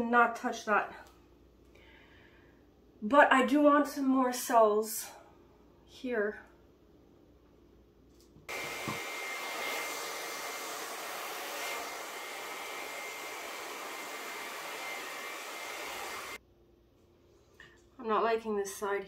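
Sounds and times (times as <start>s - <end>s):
hair dryer blowing with whine: 8.5s - 16.4s.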